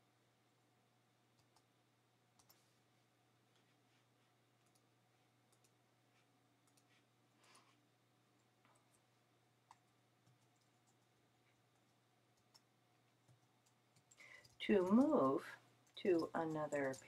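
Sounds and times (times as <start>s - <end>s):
faint steady hum: 0.0s - 17.0s
computer mouse clicks: 1.4s - 1.7s, 2.4s - 2.6s, 4.6s - 4.9s, 5.5s - 5.8s, 6.6s - 7.6s, 9.7s - 17.0s.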